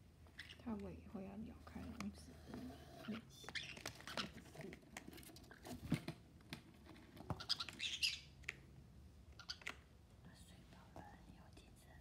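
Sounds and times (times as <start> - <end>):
bird feet and beak scratching: 1.6 - 5.9, 6.5 - 8.6.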